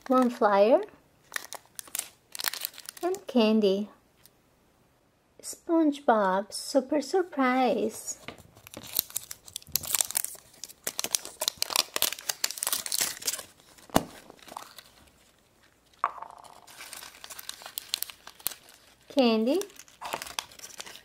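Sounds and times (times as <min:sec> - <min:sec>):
wrapper tearing and crinkling: 0:01.2 - 0:03.2, 0:08.5 - 0:21.0.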